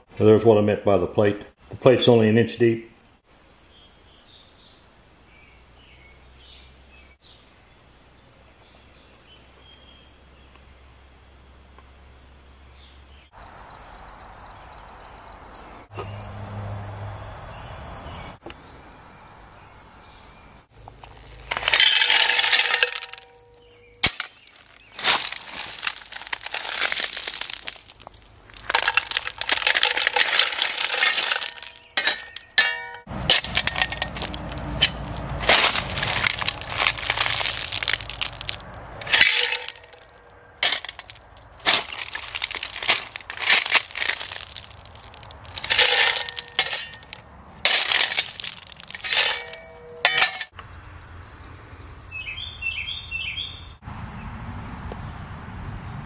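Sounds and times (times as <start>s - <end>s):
stones clattering in steel bucket: 21.0s - 23.4s, 24.0s - 50.6s.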